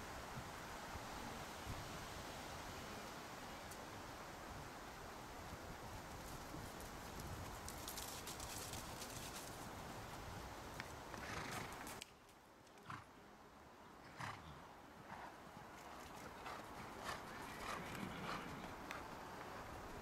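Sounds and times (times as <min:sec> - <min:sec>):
steady outdoor noise: 0:00.0 - 0:20.0
horse hoofbeats on sand: 0:15.2 - 0:19.2.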